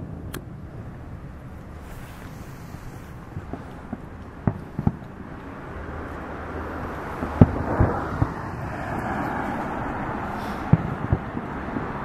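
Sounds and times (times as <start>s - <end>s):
low rumble: 0.0s - 12.0s
fireworks bangs: 1.6s - 12.0s
hiss: 1.7s - 3.8s, 10.2s - 10.8s.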